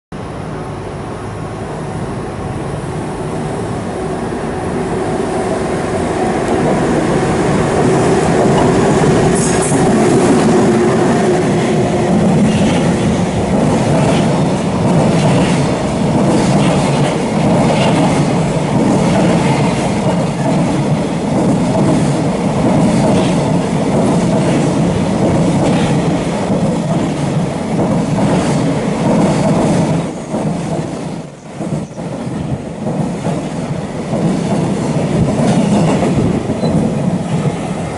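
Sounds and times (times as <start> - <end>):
electric locomotive hum: 0.1 - 37.9
train wheels clacking over rail joints: 7.6 - 37.6.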